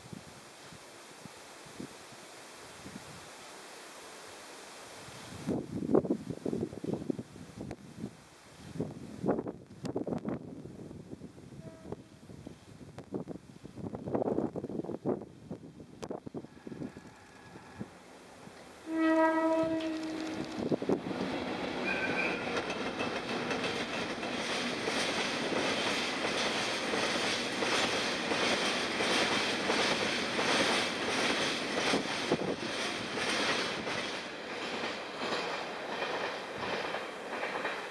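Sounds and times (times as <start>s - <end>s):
locomotive air horn blast: 18.8s - 20.5s
train wheels clattering on rails: 19.6s - 37.9s.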